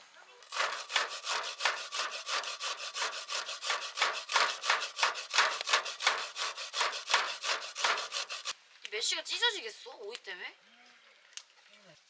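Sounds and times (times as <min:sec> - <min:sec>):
rasping strokes: 0:00.4 - 0:08.6.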